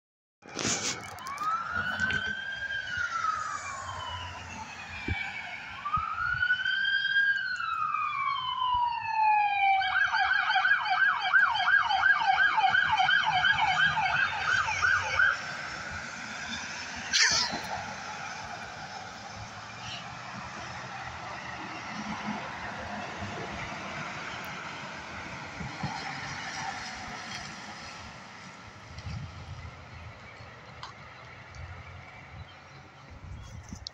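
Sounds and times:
siren wailing and yelping: 0:01.2 - 0:15.6, 0:16.9 - 0:18.5.

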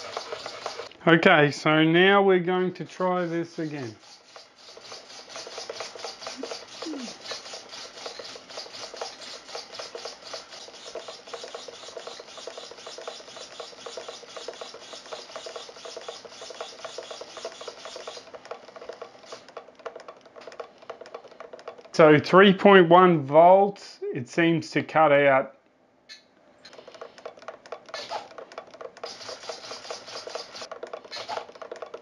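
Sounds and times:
servos whirring and buzzing: 0:00.0 - 0:01.0, 0:02.9 - 0:21.6, 0:26.6 - 0:32.0.

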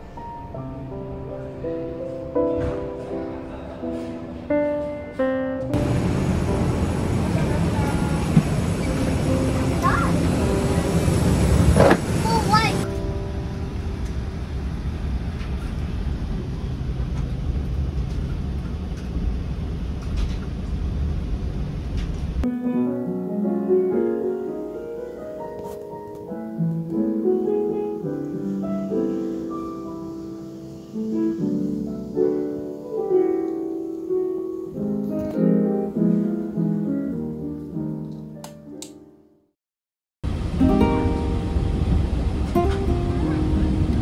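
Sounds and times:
gentle instrumental piano music: 0:00.0 - 0:14.5, 0:22.4 - 0:39.4, 0:40.4 - 0:44.0
jet airliner cabin roar: 0:05.7 - 0:22.4, 0:40.3 - 0:44.0.

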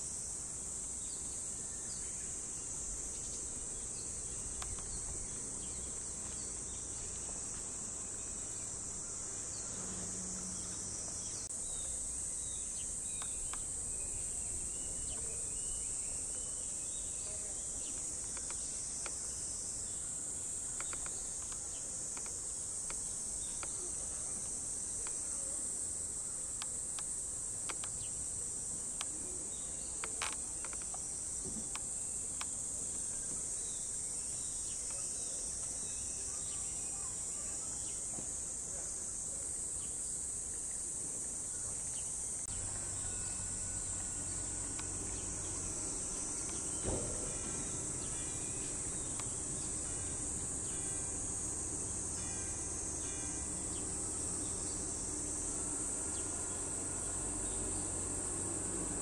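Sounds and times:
cicadas buzzing: 0:00.0 - 0:59.0
faint clicks: 0:04.5 - 0:05.0, 0:13.2 - 0:13.8, 0:17.9 - 0:19.2, 0:20.7 - 0:25.3, 0:26.5 - 0:28.1, 0:30.0 - 0:31.0.

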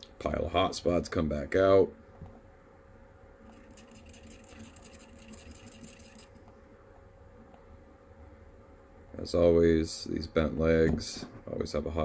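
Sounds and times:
faint steady hum: 0:00.0 - 0:12.0
rapid even ticking: 0:03.5 - 0:06.4.

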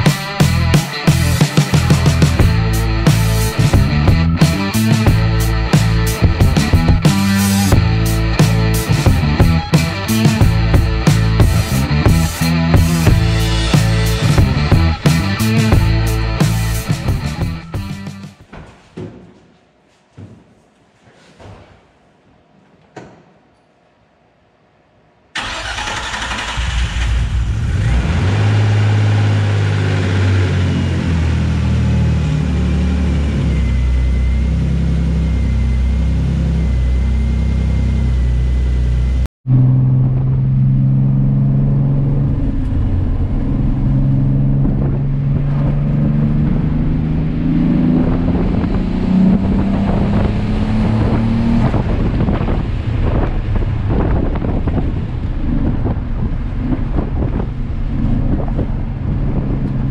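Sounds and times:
car engine running: 0:00.0 - 0:18.3.

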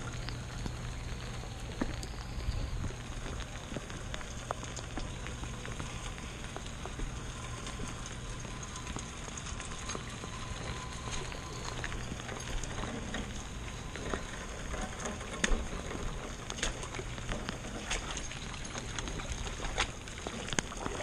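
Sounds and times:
close drops ticking: 0:00.0 - 0:21.0
rain on pavement and grass: 0:00.0 - 0:21.0.

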